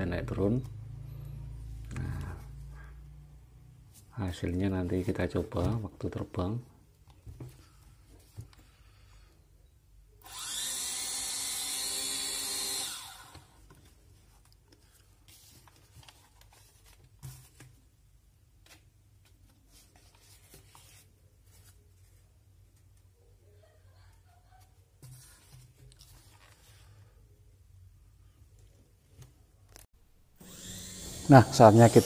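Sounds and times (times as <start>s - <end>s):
small electric motors whirring: 10.2s - 13.6s, 30.4s - 32.0s.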